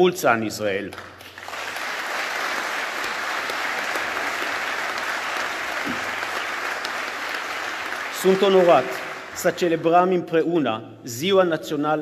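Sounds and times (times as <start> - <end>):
audience applauding: 0.9 - 9.7.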